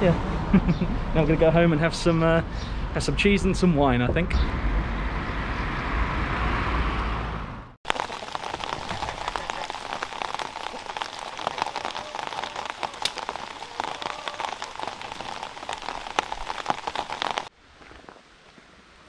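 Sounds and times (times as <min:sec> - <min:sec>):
rain on a hard surface: 0:07.8 - 0:19.0.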